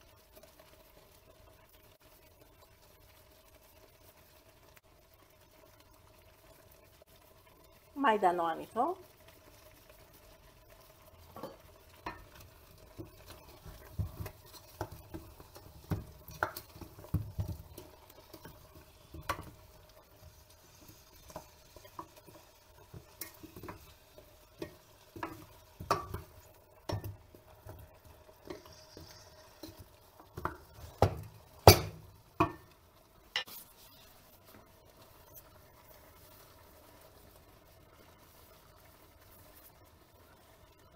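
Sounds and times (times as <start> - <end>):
food rustling in a pot: 0.0 - 40.9
knocks against a metal pot: 30.4 - 32.7.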